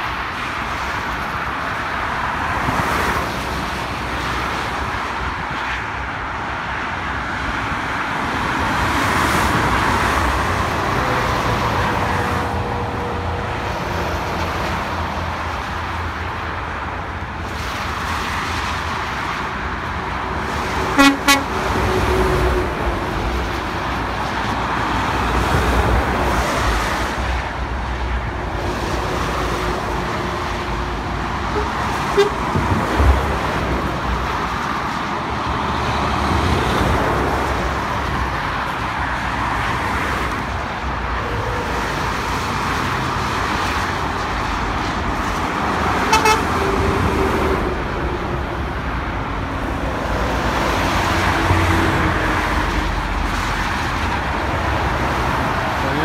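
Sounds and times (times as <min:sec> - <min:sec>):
motorway traffic: 0:00.0 - 0:56.0
lorry horn toots: 0:20.9 - 0:21.5, 0:31.5 - 0:32.5, 0:46.0 - 0:46.8.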